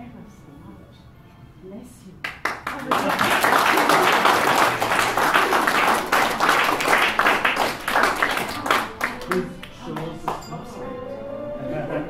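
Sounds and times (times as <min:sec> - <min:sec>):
crowd applause: 0:02.3 - 0:10.5.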